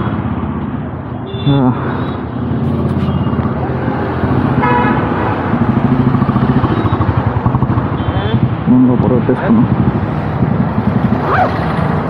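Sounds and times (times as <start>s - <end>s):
motorcycle and car engines: 0.0s - 12.0s
vehicle horn toot: 4.6s - 5.0s.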